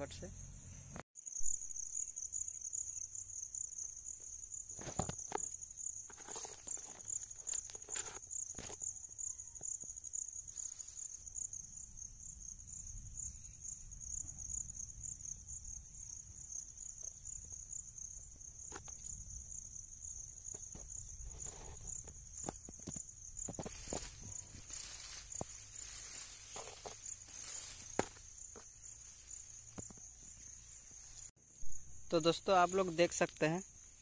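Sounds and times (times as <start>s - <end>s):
insects trilling: 0.0s - 34.0s
plants rustling: 21.3s - 31.3s.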